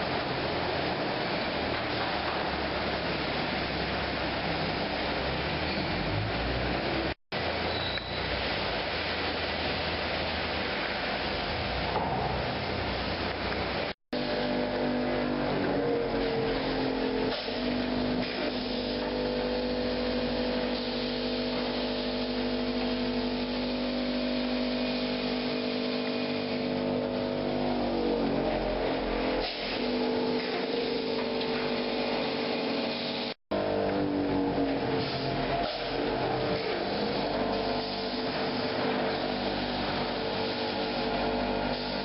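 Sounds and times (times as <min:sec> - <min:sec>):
press machinery humming: 0:00.0 - 0:42.0.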